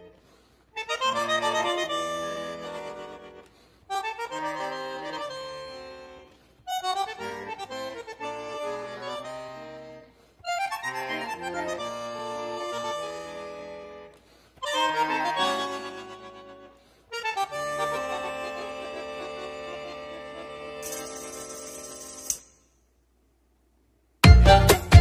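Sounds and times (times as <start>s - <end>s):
instrumental background music: 24.2s - 25.0s.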